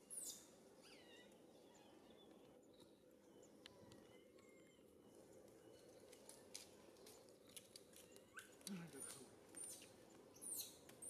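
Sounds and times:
faint high chirps and squeaks: 0:00.0 - 0:04.9, 0:07.5 - 0:10.9.

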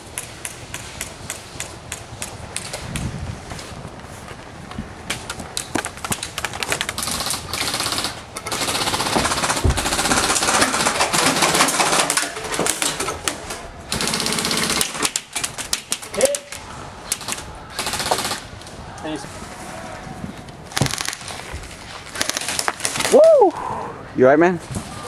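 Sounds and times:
airsoft guns firing bursts: 0:06.9 - 0:12.3, 0:13.9 - 0:16.4, 0:17.1 - 0:18.5, 0:20.7 - 0:23.2.

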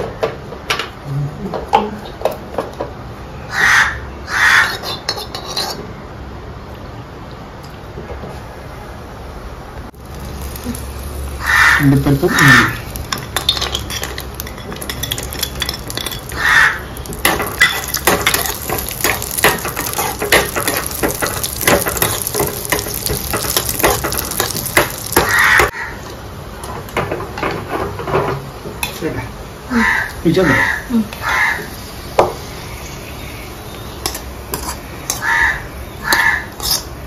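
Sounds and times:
metal spoon scraping a pan: 0:04.6 - 0:06.0, 0:12.3 - 0:29.0, 0:34.0 - 0:35.3, 0:36.1 - 0:37.0
nuts sizzling in hot oil: 0:09.9 - 0:37.0.

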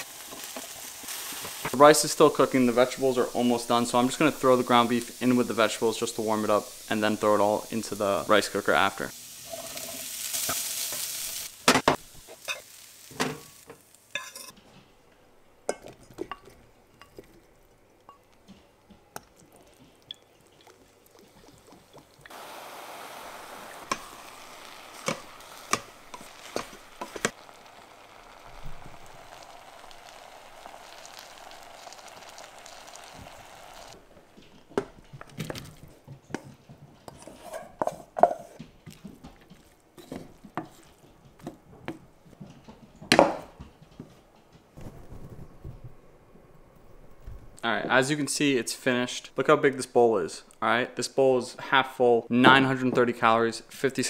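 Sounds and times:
meat sizzling in a pan: 0:00.0 - 0:14.5, 0:21.4 - 0:34.0
frying hiss: 0:00.0 - 0:14.6, 0:16.8 - 0:36.4
utensil clinking and scraping pan: 0:14.1 - 0:14.6.

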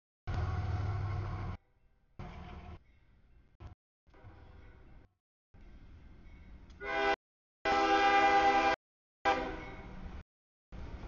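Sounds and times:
low rumble of train: 0:00.3 - 0:03.5, 0:04.1 - 0:11.0
locomotive air horn blasts: 0:06.8 - 0:09.9.

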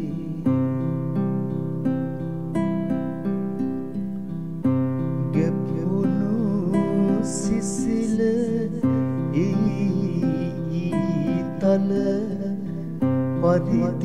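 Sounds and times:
strummed acoustic guitar: 0:00.0 - 0:14.0.

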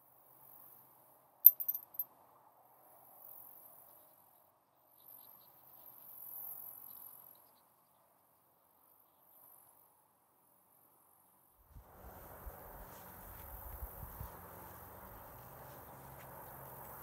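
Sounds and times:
sharp clinks: 0:01.5 - 0:02.0.

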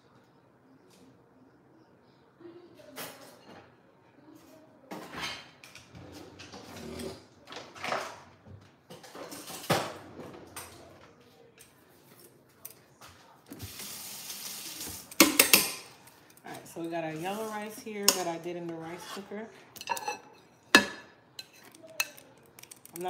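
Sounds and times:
pots and pans clattering: 0:05.0 - 0:10.8, 0:13.6 - 0:15.9, 0:19.8 - 0:23.0.

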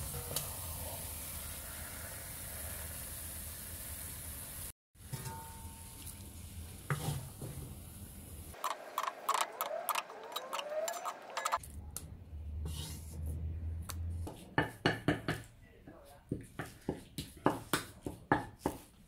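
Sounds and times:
squeaky scrapes: 0:09.0 - 0:11.6.

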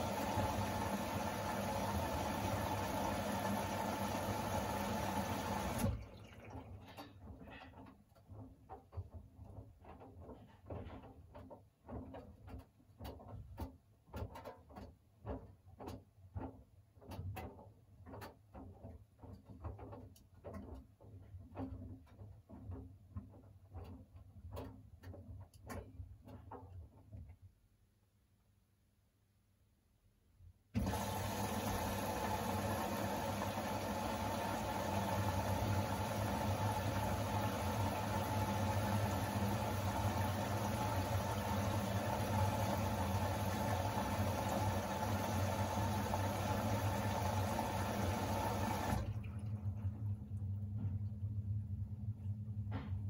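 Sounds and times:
washing machine drum turning: 0:00.0 - 0:06.8, 0:30.8 - 0:49.8
water rushing into washing machine: 0:00.0 - 0:07.6, 0:30.8 - 0:50.5.

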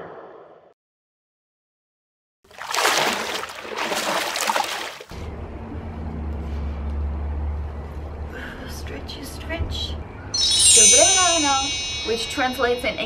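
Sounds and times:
water splashing: 0:02.5 - 0:05.1.

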